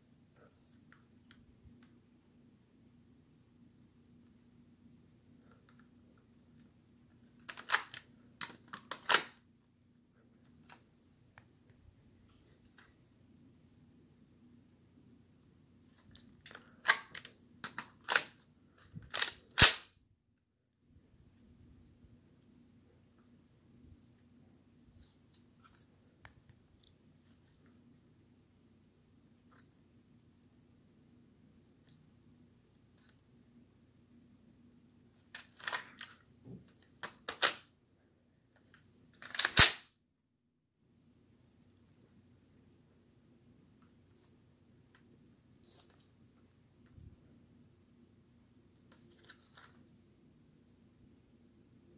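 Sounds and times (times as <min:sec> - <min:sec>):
plastic clacks and snaps: 0:07.4 - 0:09.4.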